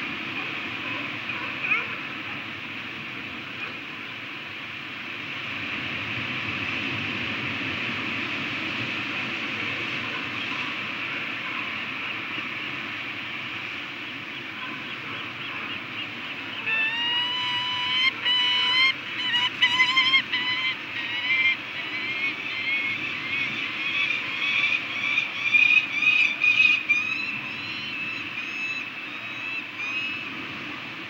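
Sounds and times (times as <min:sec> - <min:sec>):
falcon calling: 0:14.3 - 0:30.3.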